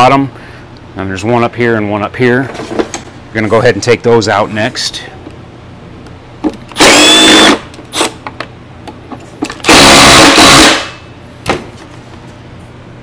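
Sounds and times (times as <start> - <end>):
cordless power driver whirring: 6.8 - 8.2.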